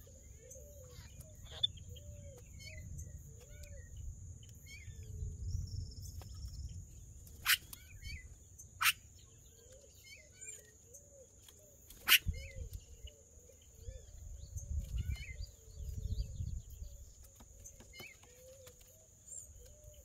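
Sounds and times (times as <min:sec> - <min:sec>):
loud sharp bird calls: 0:07.4 - 0:11.3, 0:11.9 - 0:13.1.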